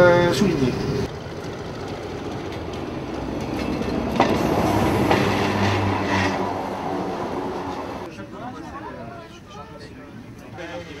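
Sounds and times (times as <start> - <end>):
railcar engine humming: 0.0 - 8.6
train wheels clacking on rail joints: 1.2 - 8.0.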